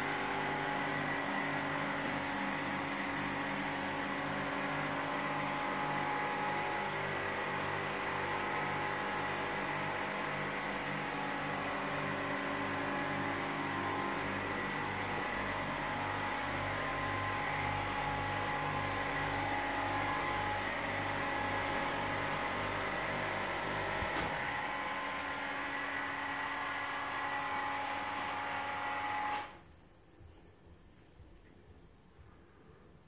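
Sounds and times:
machine humming and whining: 0.0 - 29.6
faint room noise: 29.6 - 33.0.

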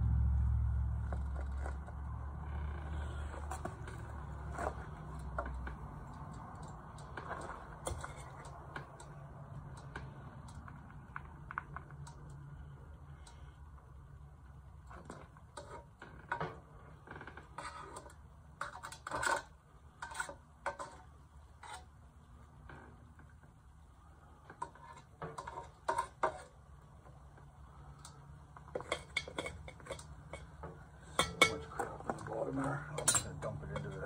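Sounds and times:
steel rod clinking on metal can: 28.8 - 31.9, 32.9 - 34.0.

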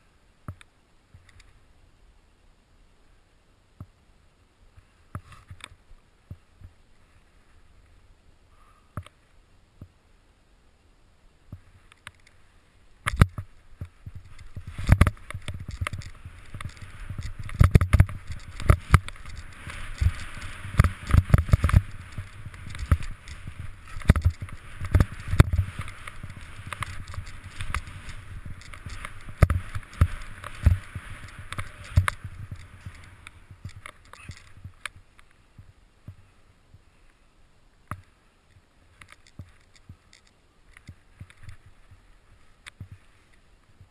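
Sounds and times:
skis hissing through snow: 11.6 - 34.7, 41.0 - 43.6
ski knocks and thumps: 13.1 - 36.2.

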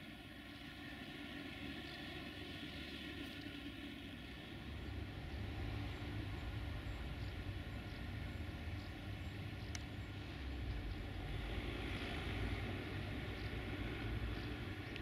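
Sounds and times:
train rumbling: 0.0 - 15.0
faint click: 9.7 - 9.9.

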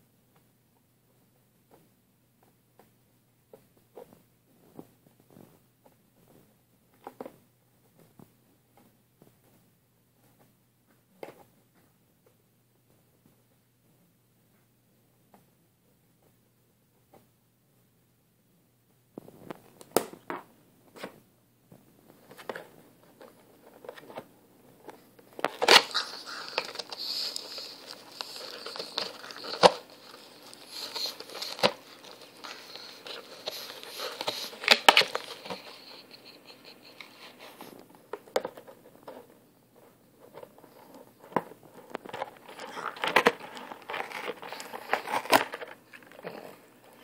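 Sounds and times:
dog tearing cardboard: 25.5 - 36.0, 42.4 - 46.2.

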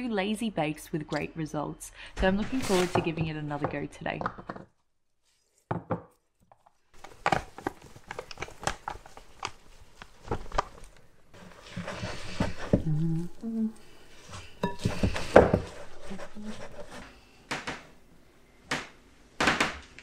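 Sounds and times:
hands mixing dough: 2.2 - 3.9, 5.1 - 17.4.

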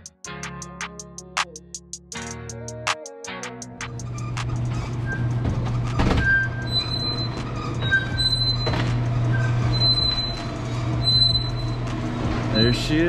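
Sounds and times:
garage door rumbling hum: 3.9 - 13.0
short high squeaks: 4.7 - 12.8.

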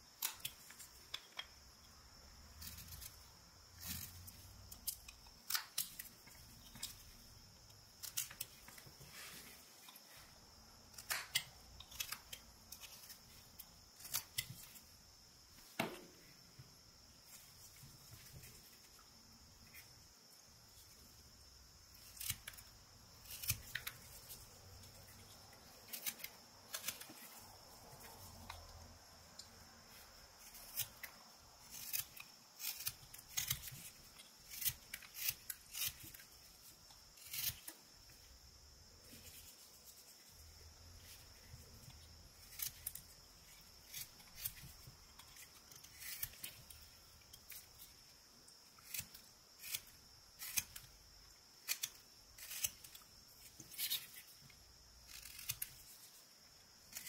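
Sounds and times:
knife whittling wood: 21.9 - 29.6, 30.4 - 37.9, 48.7 - 51.0.

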